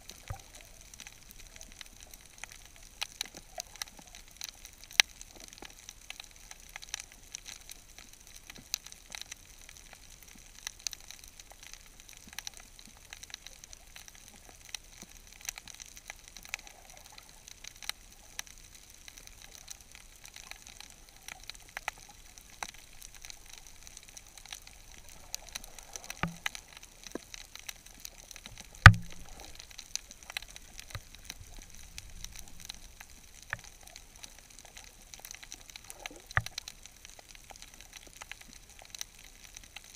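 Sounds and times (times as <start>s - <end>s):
snapping shrimp clicks: 24.5s - 27.7s, 28.4s - 33.8s.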